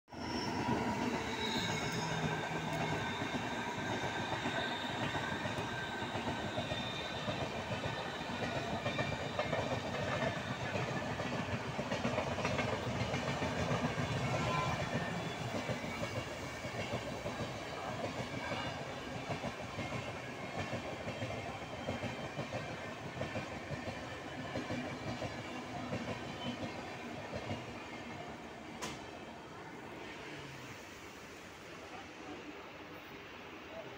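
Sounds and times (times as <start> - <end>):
train wheels clattering on rails: 1.0 - 27.8, 28.8 - 29.1.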